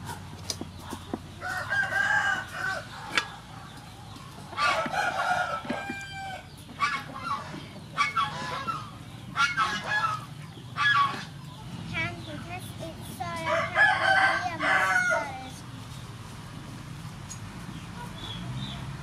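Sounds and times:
clucking calls: 0:00.0 - 0:15.2
rooster crowing: 0:01.4 - 0:02.9, 0:04.6 - 0:06.5, 0:13.5 - 0:15.3.

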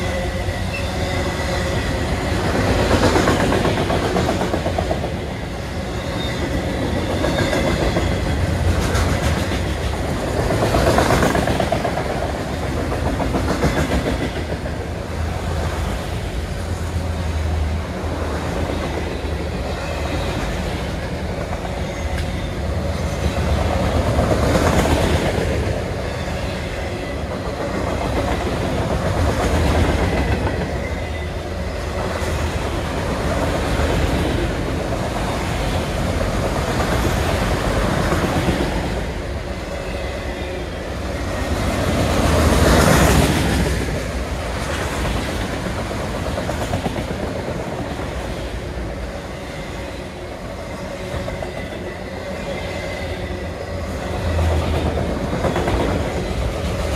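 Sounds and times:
freight train wheels rumbling on rails: 0:00.0 - 0:56.9.

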